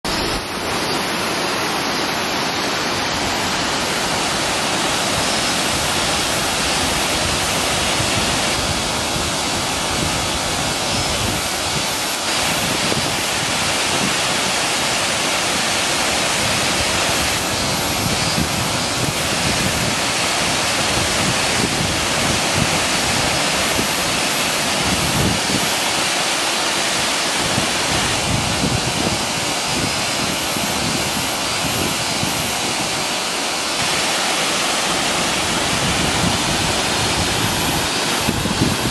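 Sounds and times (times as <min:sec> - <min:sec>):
waterfall rushing: 0:00.0 - 0:38.9.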